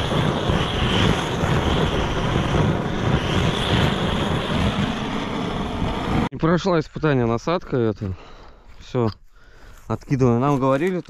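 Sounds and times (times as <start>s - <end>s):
gas torch roaring: 0.0s - 6.3s.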